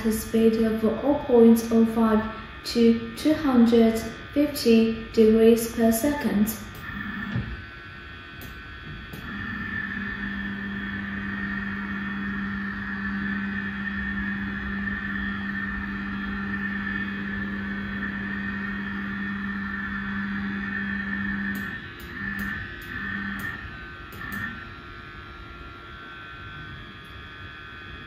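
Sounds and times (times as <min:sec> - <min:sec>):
camera motor humming: 0:05.6 - 0:24.8.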